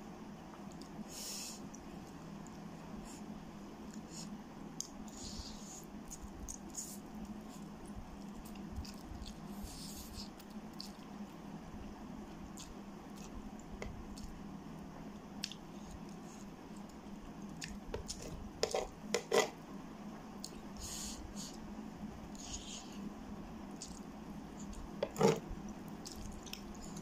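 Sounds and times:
metal spoon scraping tray: 18.6s - 19.6s.

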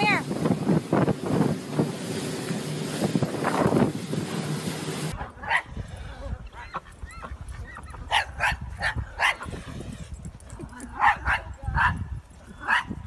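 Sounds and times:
motorboat wind and water rush: 0.0s - 6.4s.

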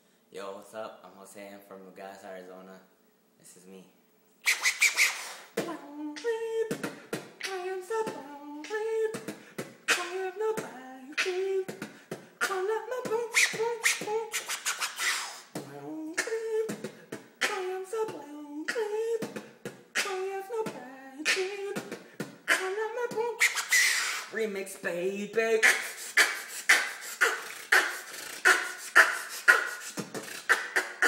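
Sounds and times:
beatboxing drum hits: 4.5s - 24.4s, 25.3s - 31.0s
hummed melody: 5.6s - 6.8s, 7.4s - 9.3s, 9.9s - 11.8s, 15.6s - 19.4s, 20.0s - 31.0s.

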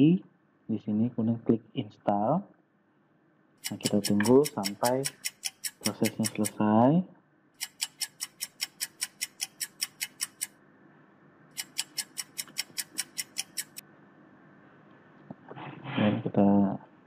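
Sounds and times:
faint steady hum: 0.0s - 17.0s
rapid ticking: 3.6s - 6.6s, 7.6s - 10.5s, 11.6s - 13.8s.

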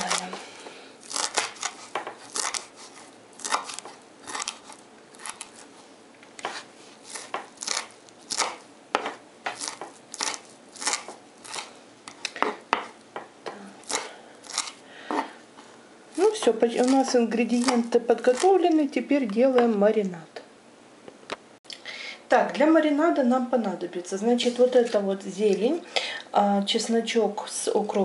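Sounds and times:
knife chopping on wooden board: 1.1s - 4.6s, 6.4s - 15.4s.

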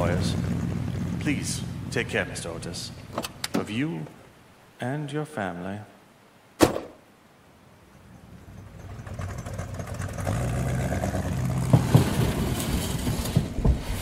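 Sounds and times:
car engine running: 0.0s - 3.4s, 8.1s - 13.6s
sharp knocks: 6.6s - 7.0s.

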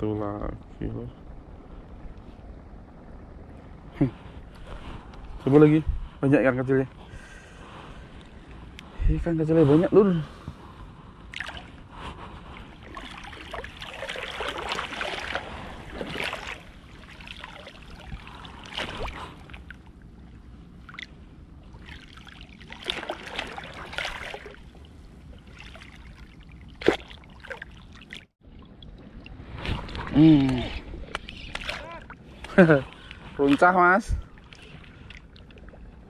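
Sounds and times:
sea water sloshing and lapping: 10.3s - 36.0s.

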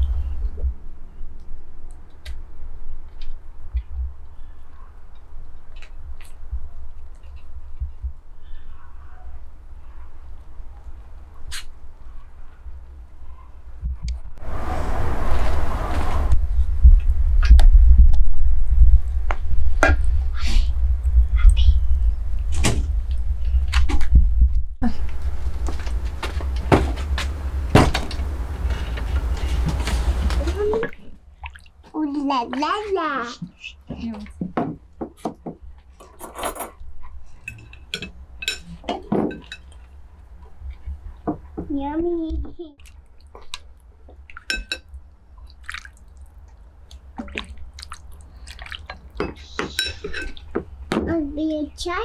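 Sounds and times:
steady low rumble: 9.4s - 31.4s
ceramic bowls clinking: 37.5s - 39.8s, 44.4s - 44.9s, 48.9s - 50.6s.

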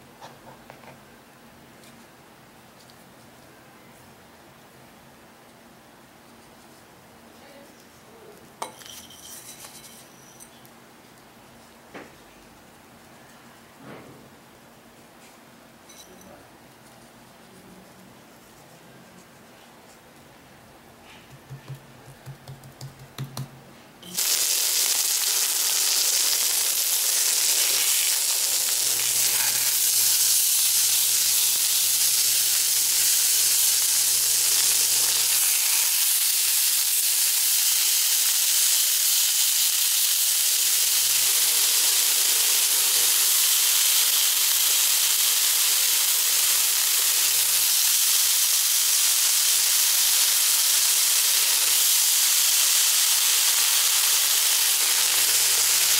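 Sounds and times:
fingers tapping meat: 21.3s - 23.6s
meat sizzling in a frying pan: 24.0s - 55.9s.

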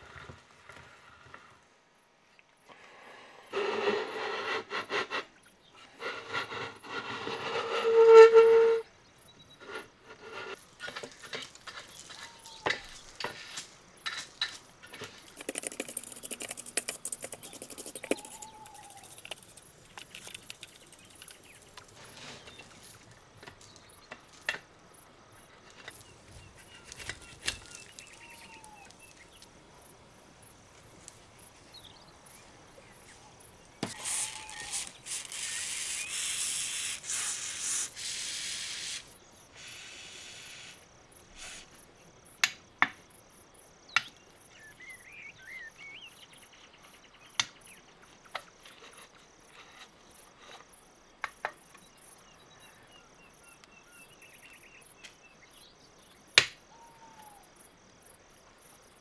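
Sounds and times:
aerosol spray can hissing: 15.4s - 21.4s, 33.9s - 40.8s.

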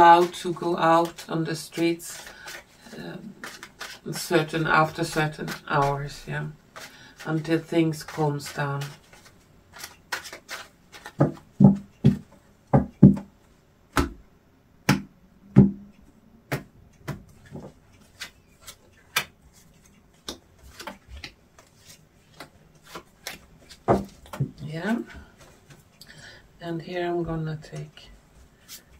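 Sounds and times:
cards slapping on a table: 19.1s - 19.4s.

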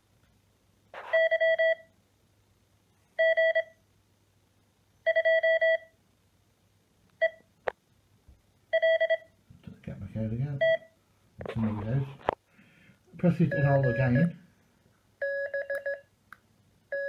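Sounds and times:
morse code beeps: 1.1s - 1.9s, 3.2s - 3.8s, 5.1s - 5.9s, 8.7s - 9.3s, 10.6s - 10.9s, 13.5s - 14.3s, 15.2s - 16.0s.

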